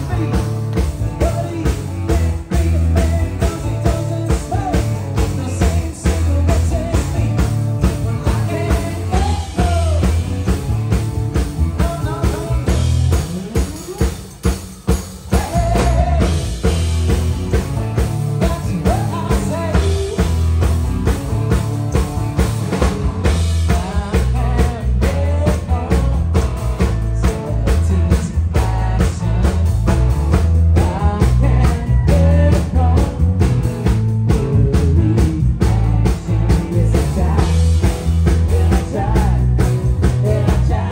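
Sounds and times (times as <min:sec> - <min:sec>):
person singing: 0:00.0 - 0:10.6, 0:11.6 - 0:14.2, 0:15.2 - 0:16.7, 0:18.3 - 0:20.5, 0:23.6 - 0:29.9, 0:30.7 - 0:33.4, 0:34.3 - 0:40.9
drum kit beat: 0:00.0 - 0:40.9
live rock band playing: 0:00.0 - 0:40.9.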